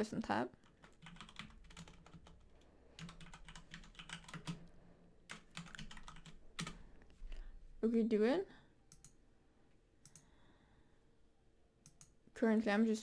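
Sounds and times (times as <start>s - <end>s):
typing on computer keyboard: 0.6s - 4.7s, 5.3s - 6.8s, 8.9s - 9.2s, 11.8s - 12.2s.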